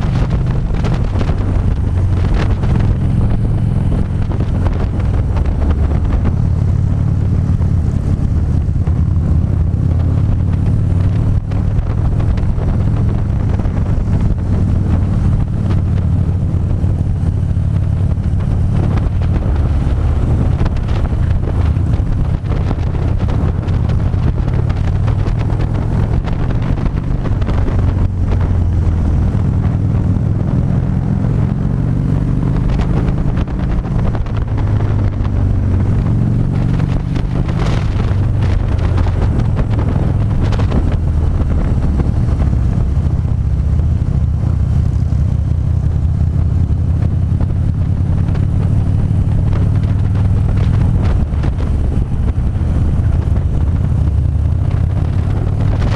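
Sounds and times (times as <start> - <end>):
motorcycle engine running: 0.0 - 55.9
wind rushing over microphone: 0.0 - 55.9.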